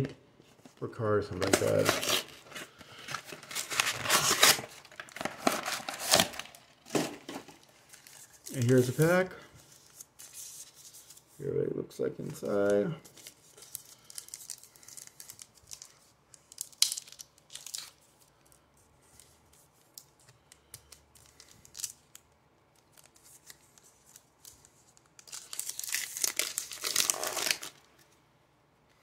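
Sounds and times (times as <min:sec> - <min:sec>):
plastic wrapper tearing and crinkling: 0:01.3 - 0:09.1, 0:13.1 - 0:18.2, 0:20.9 - 0:28.0.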